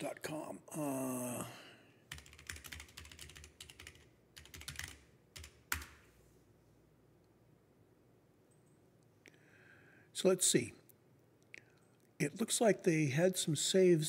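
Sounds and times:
computer keyboard typing: 2.1 - 6.0.

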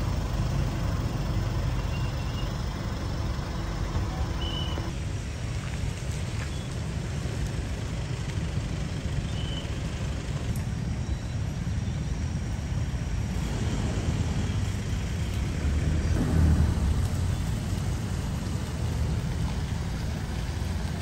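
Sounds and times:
pickup truck pulling out: 0.0 - 5.0, 11.0 - 21.0
road traffic rumble: 0.0 - 21.0.

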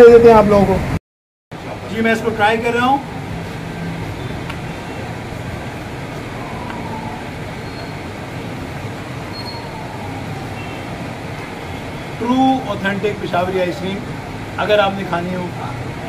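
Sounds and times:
faint falling tone: 6.2 - 8.5.

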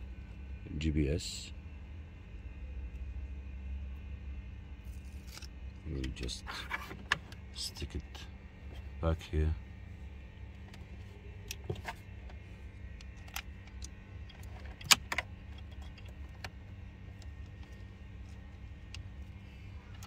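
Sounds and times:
steady low hum: 0.0 - 20.0
cables and plastic connectors rattling: 10.5 - 20.0.

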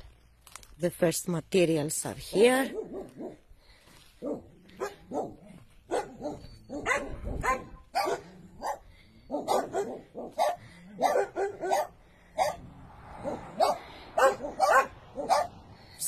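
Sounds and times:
dogs barking: 2.3 - 3.4, 4.2 - 15.8.

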